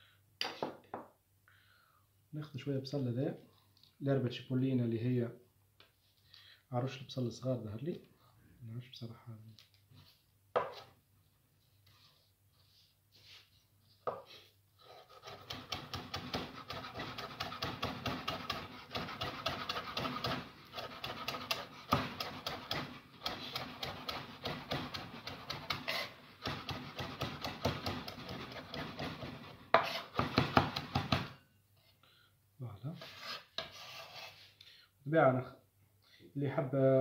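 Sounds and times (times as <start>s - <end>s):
knife chopping on wooden board: 15.1s - 31.4s.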